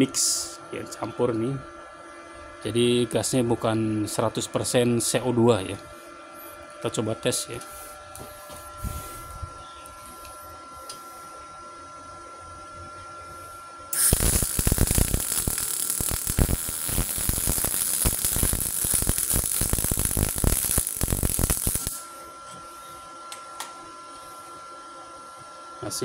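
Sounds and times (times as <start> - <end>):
welding arc crackling: 13.9 - 22.1.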